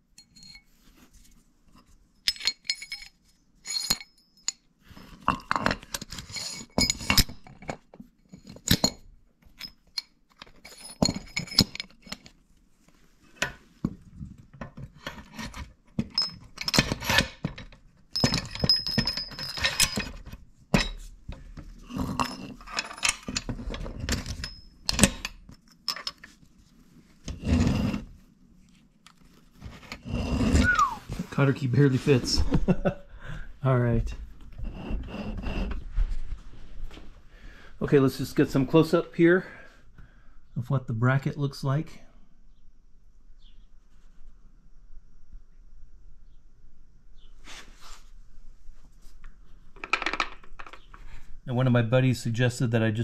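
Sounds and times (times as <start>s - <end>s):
steel washers clinking: 2.2s - 4.7s, 5.3s - 9.0s, 9.6s - 12.3s, 16.0s - 21.0s, 22.1s - 26.3s.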